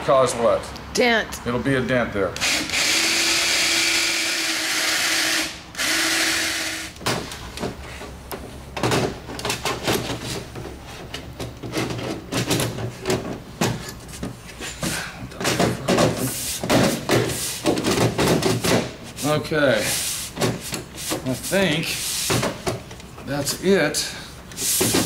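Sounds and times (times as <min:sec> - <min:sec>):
cordless drill whirring: 0:02.4 - 0:07.0.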